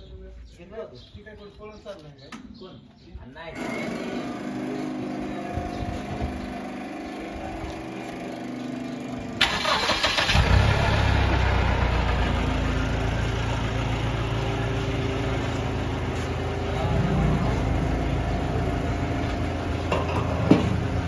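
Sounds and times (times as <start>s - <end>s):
engine idling: 3.6s - 21.0s
starter motor cranking: 9.4s - 11.1s.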